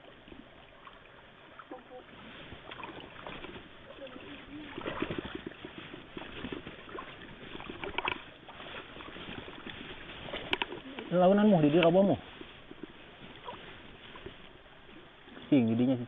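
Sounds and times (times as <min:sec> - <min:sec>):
river water splashing: 0:00.0 - 0:16.0.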